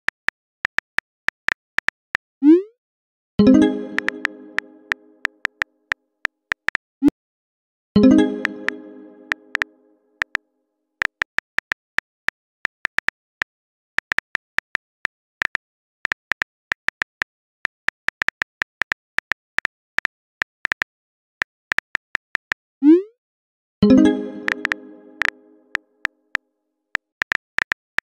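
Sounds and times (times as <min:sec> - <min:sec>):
phone keyboard taps: 0:24.5 - 0:25.3.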